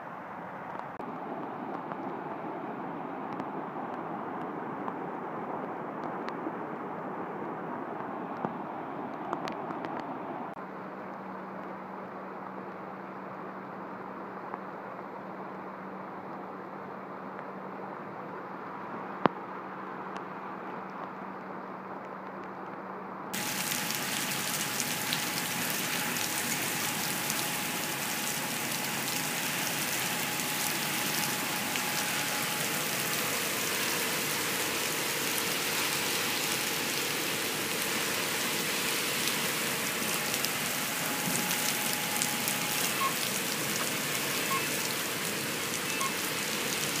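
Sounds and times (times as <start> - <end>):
heavy rain on a wet street: 23.4 - 47.0
rushing flooded creek: 23.4 - 47.0.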